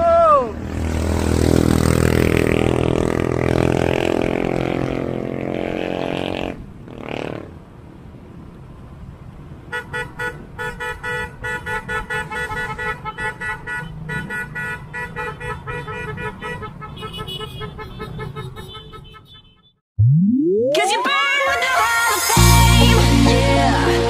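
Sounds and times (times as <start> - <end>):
vehicle horns blaring: 9.7 - 19.8.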